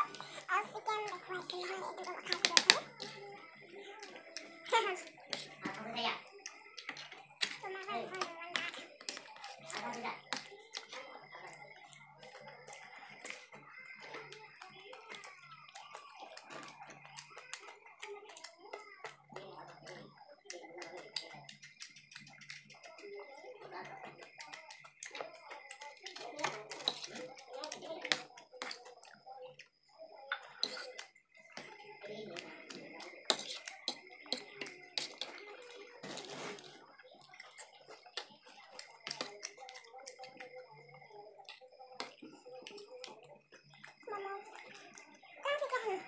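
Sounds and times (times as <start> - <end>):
wet chewing: 32.4 - 43.2
slurping noodles: 36.0 - 36.8.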